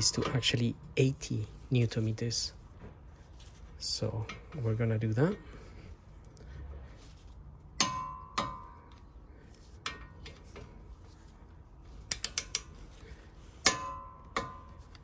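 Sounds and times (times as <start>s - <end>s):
ratchet clicks: 12.1s - 12.7s.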